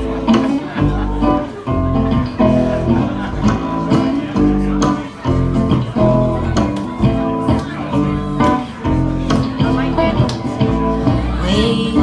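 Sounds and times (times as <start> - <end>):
acoustic guitar strumming: 0.0 - 12.0
plucked double bass: 0.0 - 12.0.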